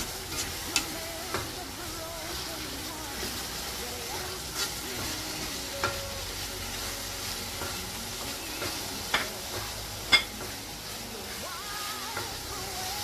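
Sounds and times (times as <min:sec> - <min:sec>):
meat sizzling in a pot: 0:00.0 - 0:13.0.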